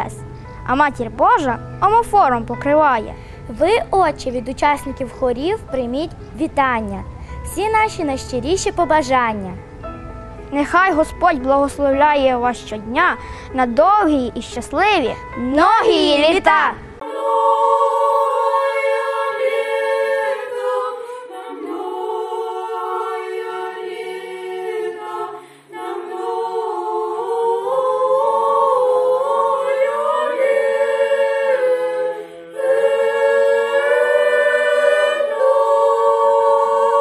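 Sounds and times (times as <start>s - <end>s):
choir singing a cappella: 15.3s - 37.0s.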